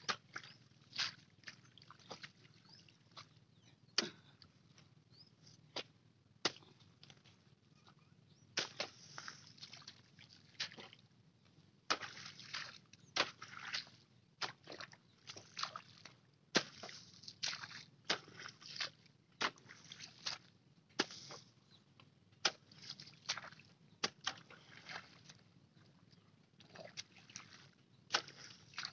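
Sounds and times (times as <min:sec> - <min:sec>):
hoe chopping into wet mud: 0:05.8 - 0:06.8, 0:08.6 - 0:09.4, 0:11.9 - 0:14.8, 0:16.6 - 0:18.6, 0:19.4 - 0:21.4, 0:22.4 - 0:25.2, 0:28.1 - 0:28.9.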